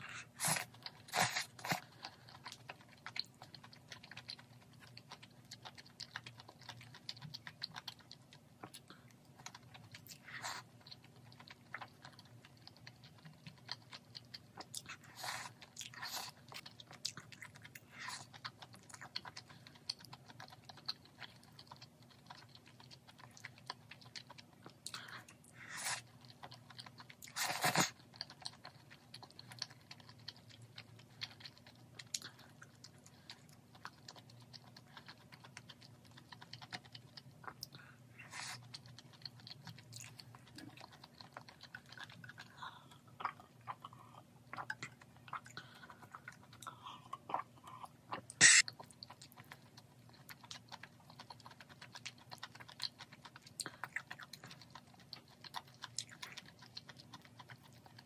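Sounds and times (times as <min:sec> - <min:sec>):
close-up chewing: 0:00.0 - 0:58.0
small mouth clicks: 0:46.5 - 0:49.1.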